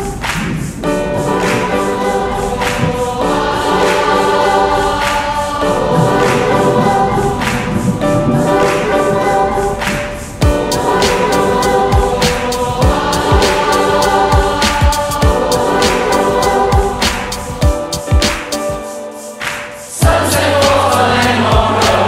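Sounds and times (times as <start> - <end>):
group of voices singing: 0.0 - 22.0
steady percussive beat: 10.4 - 22.0.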